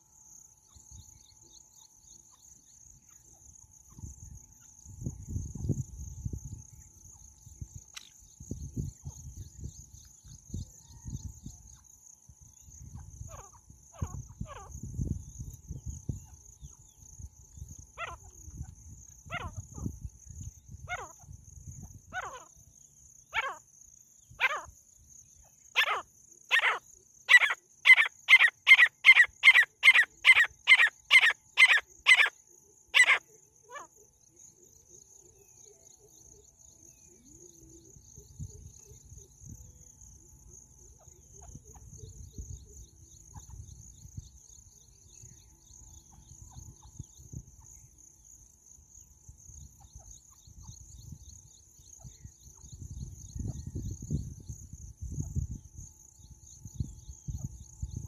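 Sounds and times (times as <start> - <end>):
faint high insect trill: 0.0 - 58.0
francolin harsh calls: 12.6 - 34.2.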